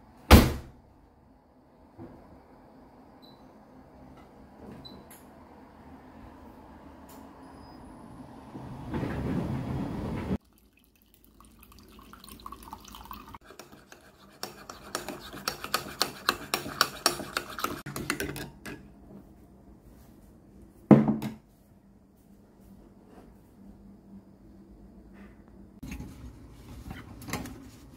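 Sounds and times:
water pouring into cup: 10.4 - 13.4.

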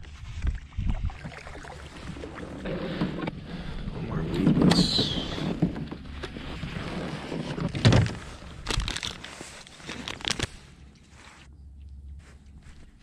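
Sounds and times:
plastic bag crinkling: 8.2 - 10.7.

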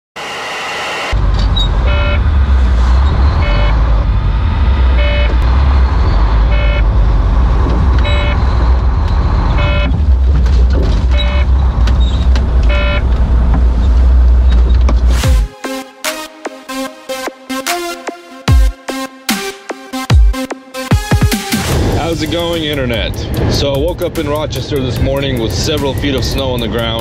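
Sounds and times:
truck engine idling: 1.1 - 17.6
short electronic beeps: 1.9 - 2.2, 3.4 - 3.8, 5.0 - 5.4, 6.5 - 6.8, 8.0 - 8.5, 9.6 - 10.0, 11.1 - 11.5, 12.7 - 13.1.

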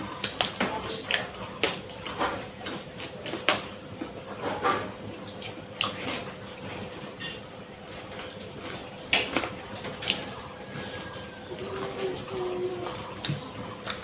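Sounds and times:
chewing mouth smacks: 5.0 - 7.1, 8.2 - 10.9, 11.6 - 14.0.

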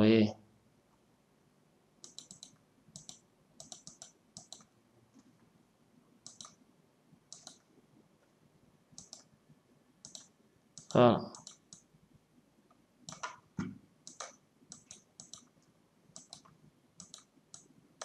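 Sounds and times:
computer mouse clicking: 2.0 - 4.7, 6.2 - 6.6, 7.3 - 7.7, 9.0 - 9.3, 10.0 - 11.9, 13.1 - 13.4, 14.0 - 17.7.

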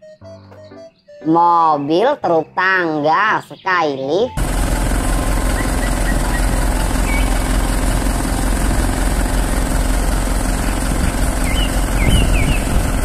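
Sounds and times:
bird chirps: 0.0 - 4.4, 5.4 - 7.5, 11.4 - 12.7
truck engine running: 4.4 - 13.0.

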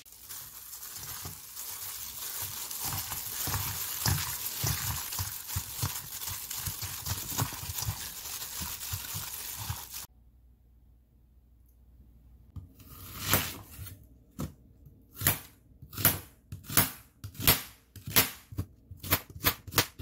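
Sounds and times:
wet squishing of meat mixing: 0.0 - 10.1.

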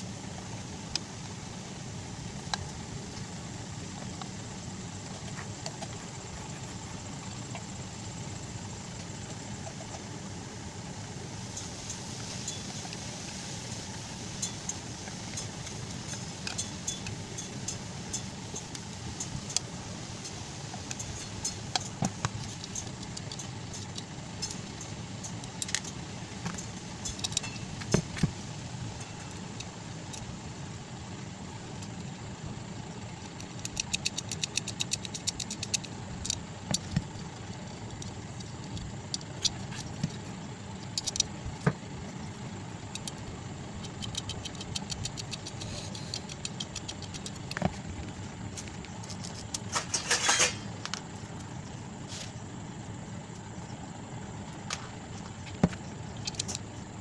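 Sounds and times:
steady low hum: 0.0 - 57.0
screwdriver and metal parts clicking: 15.4 - 19.6, 20.2 - 28.2, 33.2 - 37.0, 40.8 - 41.3, 42.9 - 43.2, 43.8 - 47.8, 48.6 - 51.5, 56.2 - 56.6
rapid fine ticking: 33.0 - 49.7.

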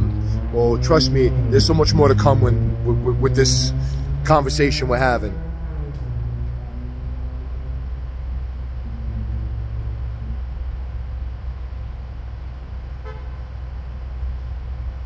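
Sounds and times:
street traffic rumble: 0.0 - 15.0
car horn toot: 13.0 - 13.4.

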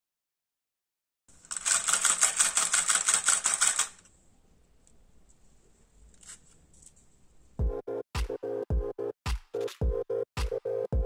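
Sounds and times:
toy motor clattering: 1.4 - 4.1.

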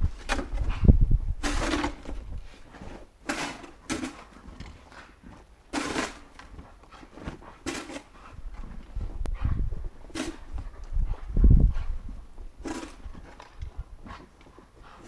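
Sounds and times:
snow shovel scraping snow: 1.4 - 4.4, 5.7 - 8.3, 10.1 - 10.6, 12.6 - 13.3.

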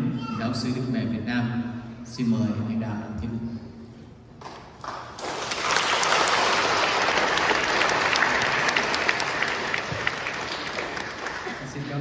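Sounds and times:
crowd clapping in church: 4.4 - 12.0.

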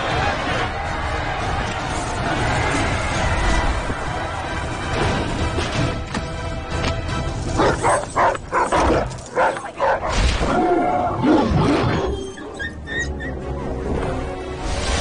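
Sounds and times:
film soundtrack music: 0.0 - 15.0
dog barking: 7.6 - 10.2.

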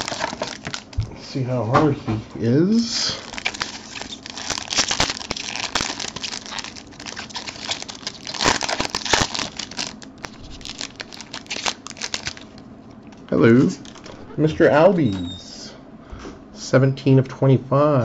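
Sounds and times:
foil wrapper crinkling and tearing: 0.0 - 1.0, 3.0 - 14.1.

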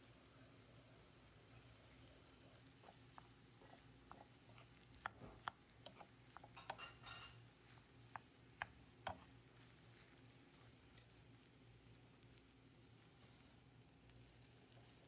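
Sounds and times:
spatula scraping pan: 2.6 - 9.9.

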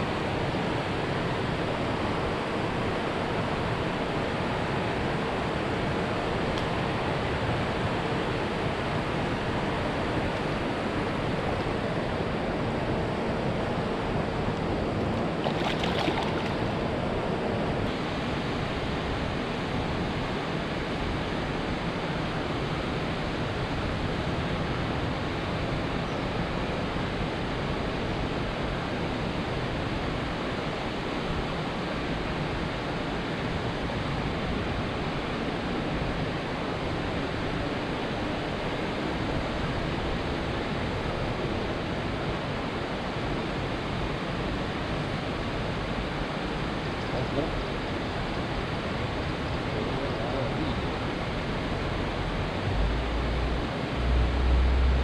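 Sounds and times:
faint steady hum: 0.0 - 55.0
wind: 0.0 - 55.0
river water rushing: 14.8 - 19.3, 50.7 - 55.0.

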